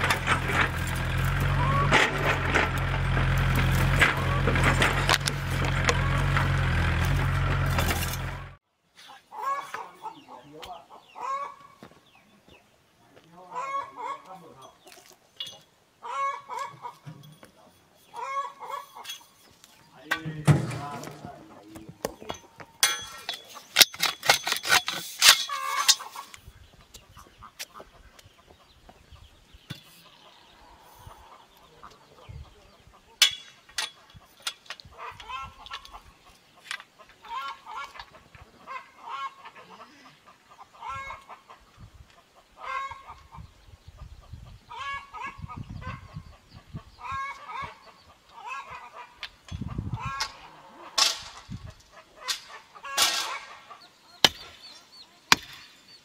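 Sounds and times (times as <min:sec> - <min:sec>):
rapid clattering: 0:00.0 - 0:08.6
chickens clucking: 0:00.0 - 0:56.0.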